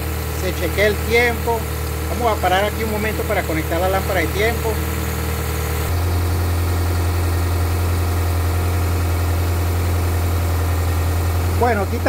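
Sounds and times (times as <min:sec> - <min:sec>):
car engine fast idle: 0:00.0 - 0:12.0.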